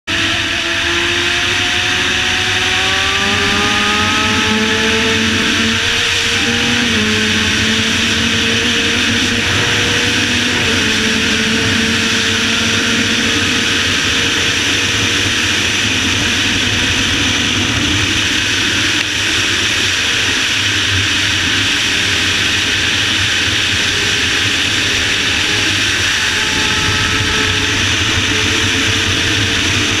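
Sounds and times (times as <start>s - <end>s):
motorcycle engine running hard: 0.0s - 30.0s
wind rush on microphone: 0.1s - 30.0s.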